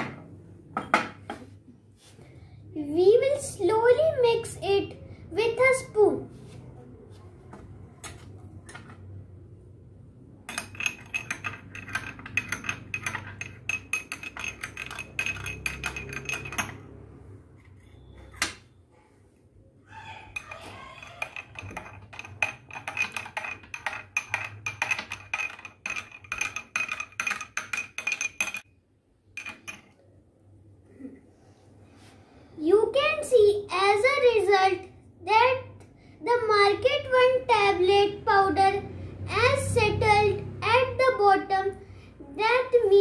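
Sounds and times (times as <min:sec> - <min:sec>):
spoon clinking against glass: 0:10.5 - 0:16.9, 0:20.4 - 0:28.6.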